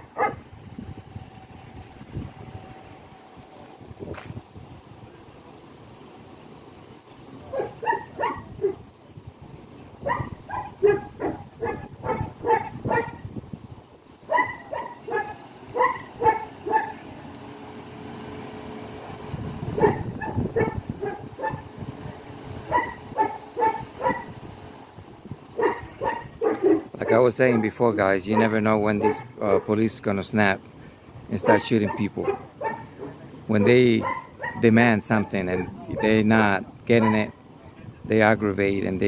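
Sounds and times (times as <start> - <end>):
steady hum: 0.0 - 7.5
dog barking: 0.2 - 0.4, 7.5 - 8.8, 10.0 - 13.2, 14.3 - 17.0, 19.8 - 21.6, 22.7 - 24.3, 25.6 - 29.7, 31.4 - 36.2, 37.0 - 37.4.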